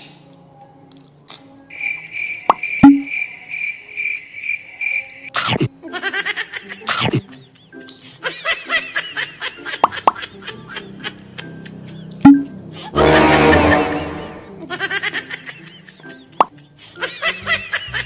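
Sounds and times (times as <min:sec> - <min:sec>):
cricket chirping trill: 0:01.7 - 0:05.3
comic swooping sound effects: 0:12.3 - 0:14.6.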